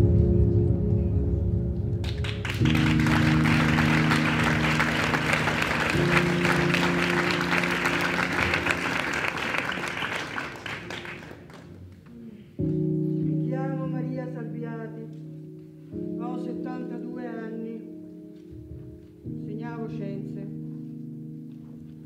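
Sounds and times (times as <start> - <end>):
held music chords: 0.0 - 10.7
audience applauding: 2.0 - 12.1.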